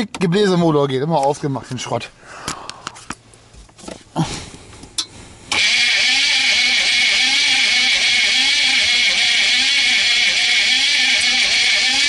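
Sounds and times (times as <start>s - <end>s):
diesel engine starter cranking: 5.5s - 12.0s.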